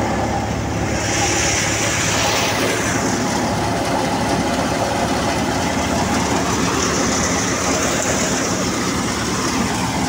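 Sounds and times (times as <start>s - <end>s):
tractor engine: 0.0s - 10.0s
rushing hiss: 0.5s - 4.2s.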